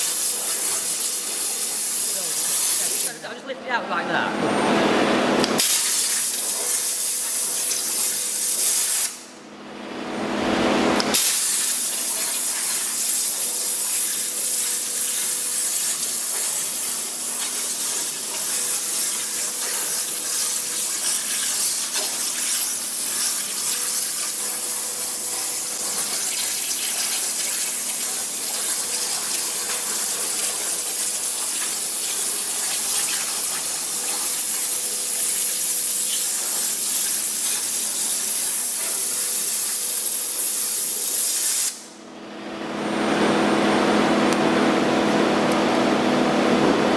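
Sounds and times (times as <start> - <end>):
waterjet hissing: 0.0 - 3.2, 11.2 - 39.9.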